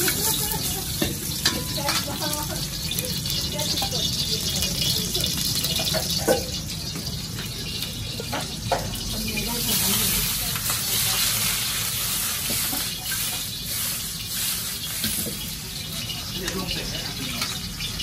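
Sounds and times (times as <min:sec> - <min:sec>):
meat sizzling in a wok: 0:00.0 - 0:18.0.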